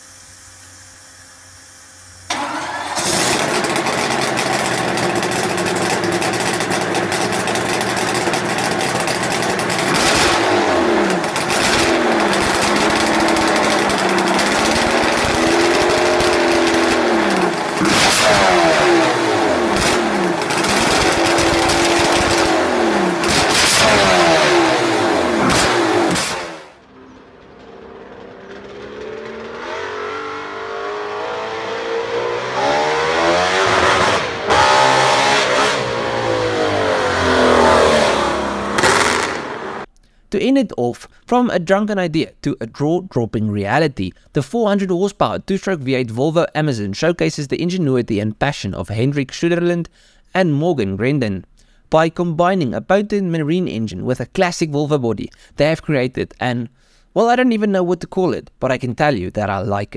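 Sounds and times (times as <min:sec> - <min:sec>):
distant car engine rising pitch: 0:02.3 - 0:39.9
engine revving: 0:02.3 - 0:39.9.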